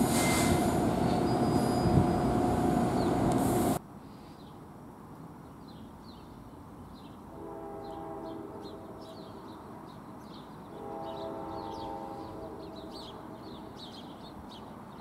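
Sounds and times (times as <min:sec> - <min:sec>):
distant train air horn: 0:00.0 - 0:02.2, 0:07.3 - 0:09.2, 0:10.7 - 0:13.1
birds chirping: 0:00.9 - 0:03.3.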